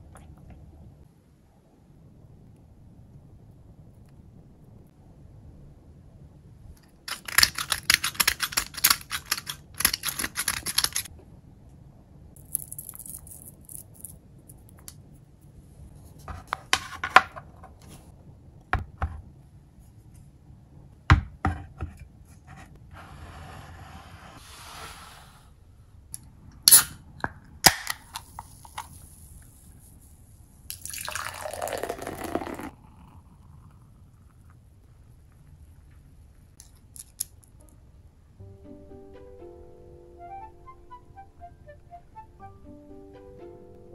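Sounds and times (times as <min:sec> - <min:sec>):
beer pouring into glass mug: 0:30.7 - 0:33.8.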